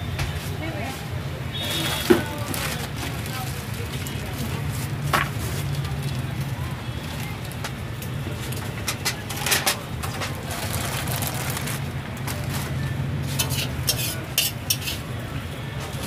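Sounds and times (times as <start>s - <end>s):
foil containers crinkling: 1.6s - 6.4s, 8.4s - 14.2s
metal spatula against wok: 13.2s - 15.2s.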